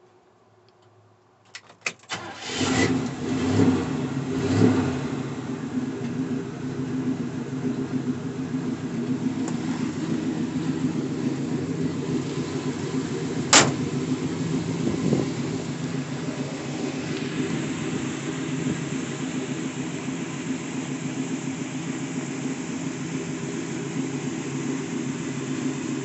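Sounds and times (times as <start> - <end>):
pickup engine idling: 3.1 - 26.0
sharp knock: 13.5 - 13.8.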